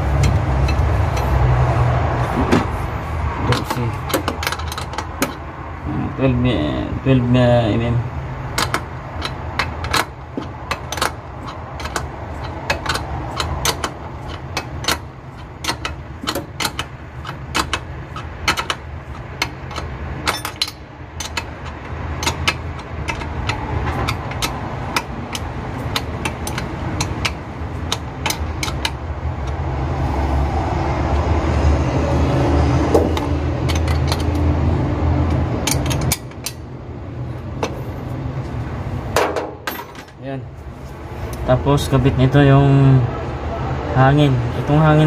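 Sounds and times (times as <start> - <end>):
wrench clicking on metal nuts: 8.5 - 29.6, 33.0 - 34.5, 35.2 - 36.7.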